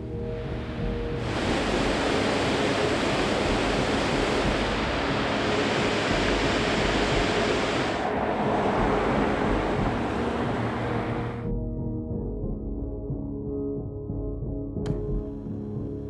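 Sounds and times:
waterfall roaring: 0.3 - 11.4.

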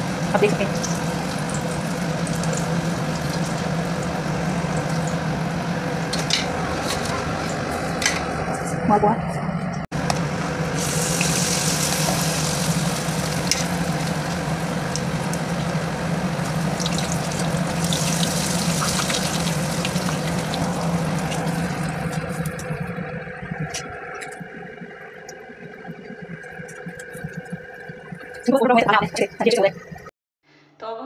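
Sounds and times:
steady low hum: 0.0 - 30.1
batter sizzling in hot oil: 10.0 - 22.5.

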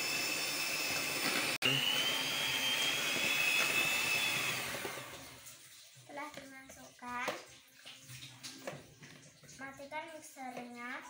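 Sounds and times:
electric hand mixer whining: 0.0 - 5.5.

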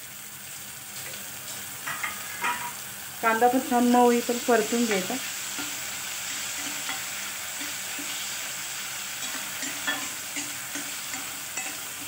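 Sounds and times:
vegetables sizzling in hot oil: 0.0 - 12.0
spatula scraping and tapping pan: 1.0 - 2.8, 6.4 - 8.3, 9.2 - 12.0.

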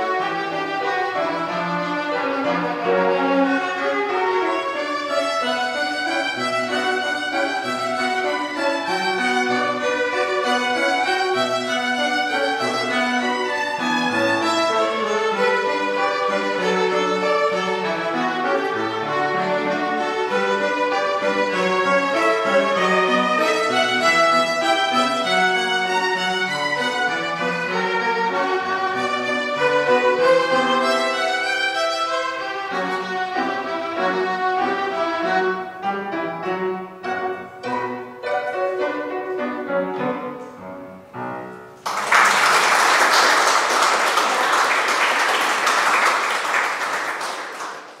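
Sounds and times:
violins playing: 0.0 - 41.3
piano accompaniment: 0.0 - 48.0
audience applause: 41.8 - 48.0.

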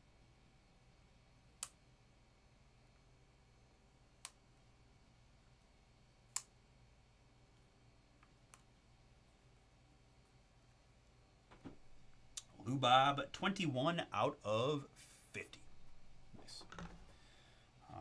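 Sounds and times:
computer mouse clicks: 4.2 - 4.4
low hum: 11.6 - 14.7, 15.4 - 17.2.

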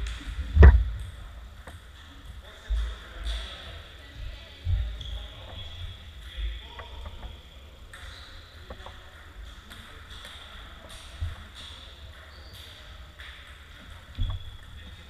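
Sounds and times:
low thumps: 0.0 - 1.8.

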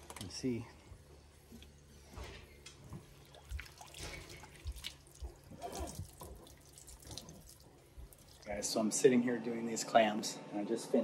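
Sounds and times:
small knocks and splashes: 2.2 - 8.6.

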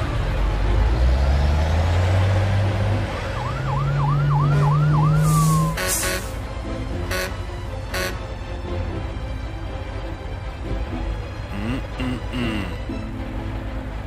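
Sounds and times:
engine hum: 0.0 - 14.0
fast yelping siren: 3.4 - 5.4.

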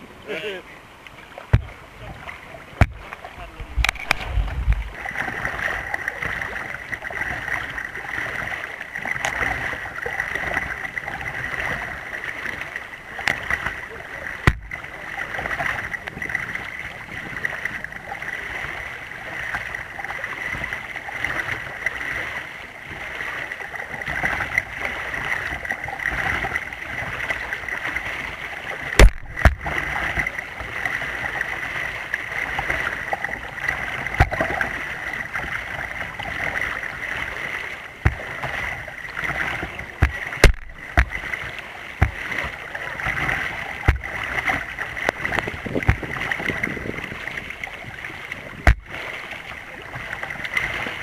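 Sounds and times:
water rushing and splashing at bow: 0.0 - 51.0
sharp knocks on kayak: 1.5 - 1.8, 2.8 - 5.0, 14.4 - 14.8, 29.0 - 30.3, 34.2 - 34.6, 38.0 - 38.6, 39.2 - 41.3, 42.0 - 46.8, 48.6 - 49.0.

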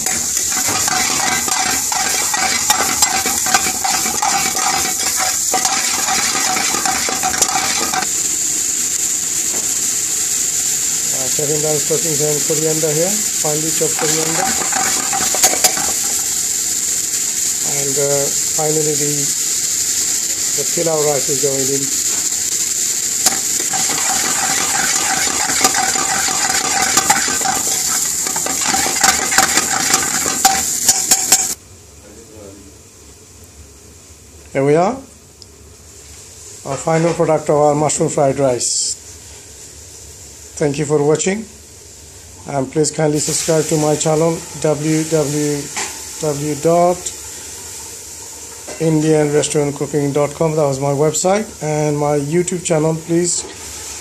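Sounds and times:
metal spoon clinking and scraping pan: 0.0 - 8.1, 13.6 - 16.3, 23.2 - 31.6
vegetables sizzling in a frying pan: 0.0 - 31.9, 32.7 - 54.0.

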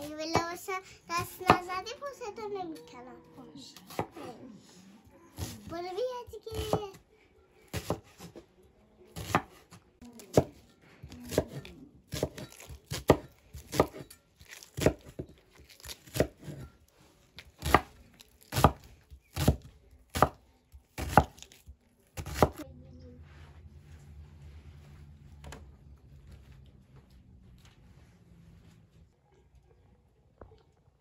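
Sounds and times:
cleaver chopping onion on wood: 0.2 - 0.6, 1.2 - 1.7, 6.5 - 7.0, 7.7 - 8.3, 9.1 - 10.6, 11.2 - 16.6, 17.5 - 22.6.

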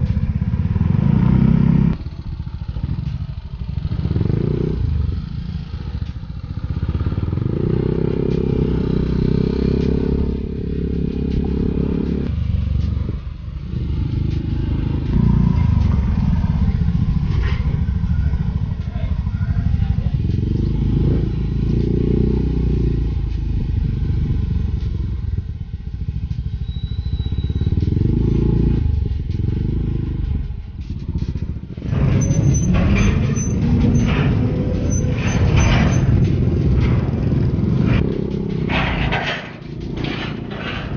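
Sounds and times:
scooter engine running: 0.0 - 38.9
wind and road noise: 0.0 - 40.9
bikes rattling on steel ramp: 30.3 - 40.9.

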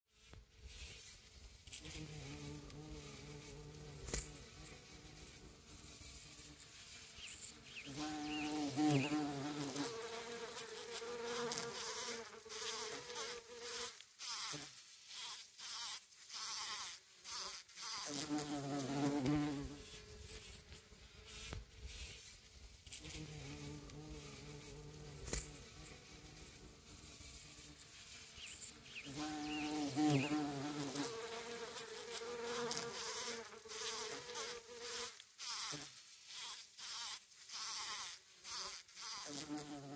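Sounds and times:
bees buzzing in flight: 1.9 - 13.8, 23.0 - 35.1.

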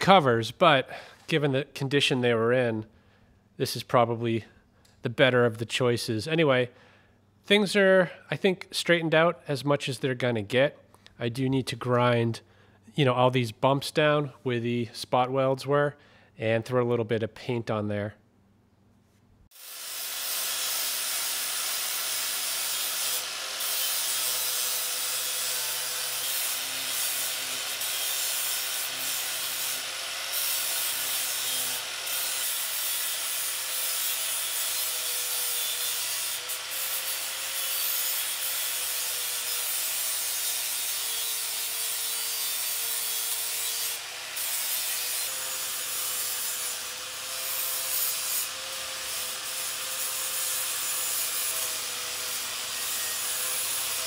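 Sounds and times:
angle grinder grinding steel: 19.6 - 54.0.

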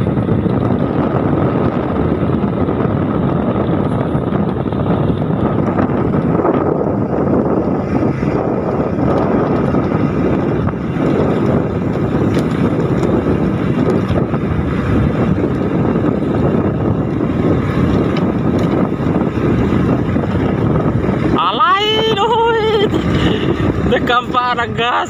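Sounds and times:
motorcycle engine cruising: 0.0 - 25.0
wind buffeting microphone: 0.0 - 25.0.

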